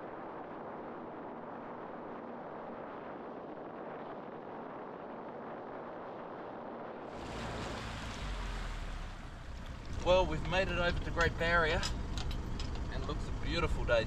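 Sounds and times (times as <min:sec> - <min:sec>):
wind rumble on microphone: 0:00.0 - 0:14.0
jet ski engine and spray: 0:07.0 - 0:12.2.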